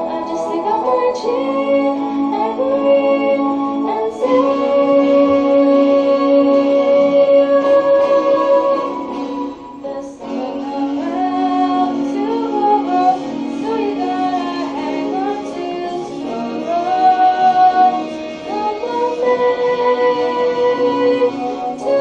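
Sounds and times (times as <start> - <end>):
sustained instrumental backing: 0.0 - 22.0
woman singing a slow ballad: 9.8 - 22.0.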